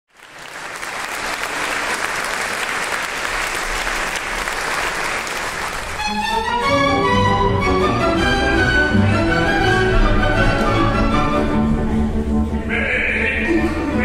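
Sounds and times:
audience applauding: 0.1 - 6.8
orchestra playing: 3.3 - 14.0.

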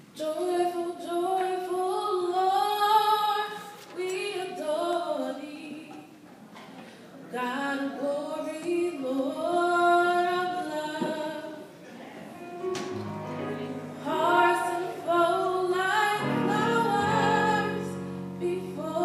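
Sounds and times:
girl singing solo: 13.8 - 19.0.

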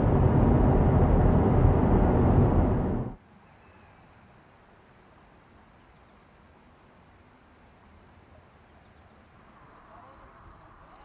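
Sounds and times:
insect chirping: 3.9 - 8.2, 8.8 - 11.0.

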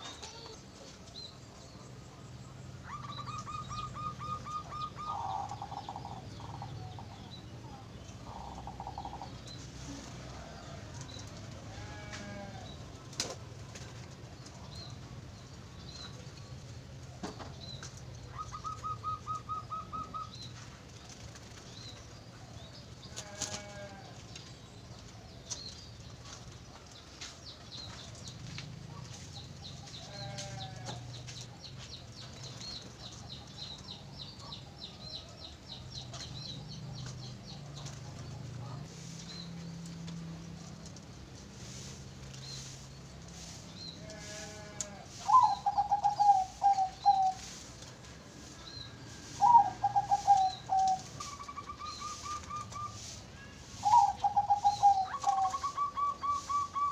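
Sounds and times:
lower wavering bird calls: 2.8 - 9.6, 18.2 - 20.5, 44.1 - 47.6, 48.5 - 56.9
high bird chirps: 53.9 - 56.9.

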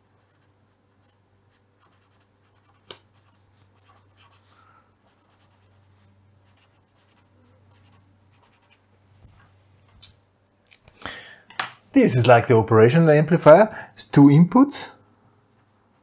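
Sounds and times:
pencil scratching on paper: 0.0 - 8.8.

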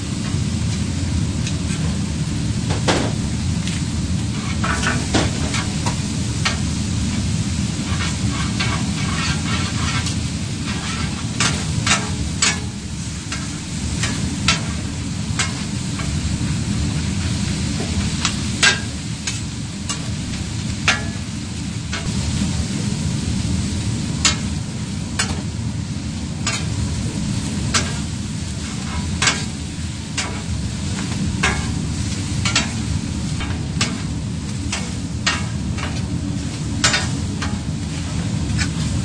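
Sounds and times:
food sizzling on a griddle: 0.0 - 39.0
metal spatulas scraping griddle: 4.3 - 6.6, 7.8 - 16.3, 26.4 - 26.8, 27.7 - 34.1, 34.7 - 39.0.

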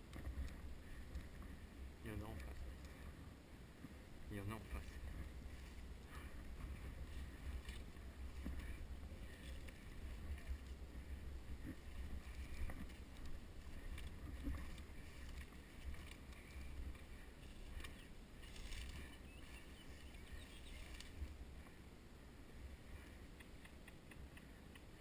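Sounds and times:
low wind rumble on microphone: 0.0 - 25.0
leaves and stems brushing: 4.3 - 21.8.

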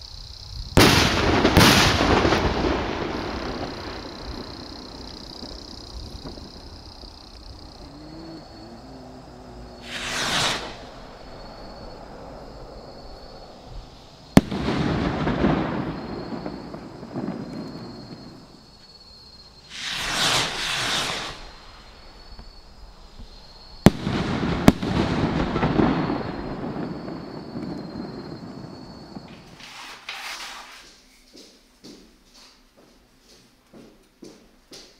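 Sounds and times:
firework bang with rumbling echo: 0.7 - 6.9, 9.8 - 11.9, 14.3 - 18.4, 19.7 - 21.6, 23.8 - 29.6
firework rocket whooshing up: 0.8 - 7.8, 9.6 - 18.3, 19.6 - 22.2, 23.8 - 30.9.

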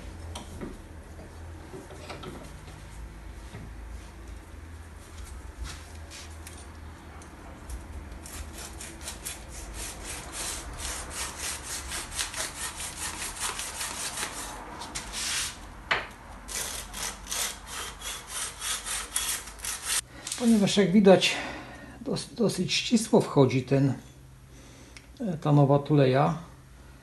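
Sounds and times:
sandpaper rasping on metal shaft: 8.3 - 15.6, 16.5 - 20.6.

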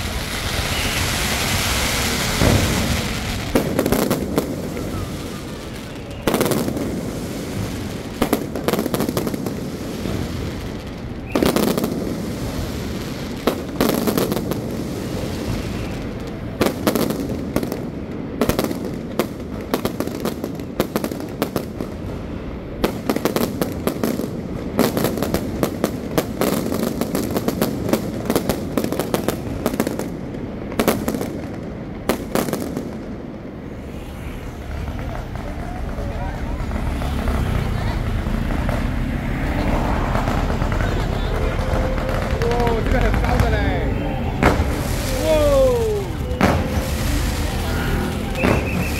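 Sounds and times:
firework bangs and crackle: 0.0 - 48.9
loud firework reports: 0.0 - 48.9
constant rumble: 33.1 - 48.9.

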